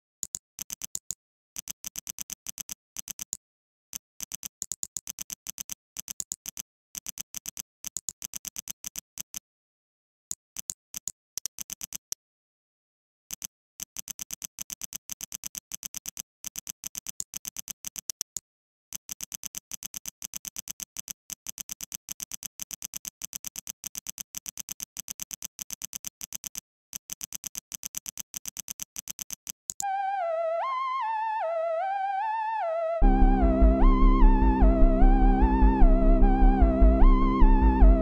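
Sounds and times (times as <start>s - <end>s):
rapid clicks: 13.3s - 29.8s
electronic wavering melody: 29.8s - 38.0s.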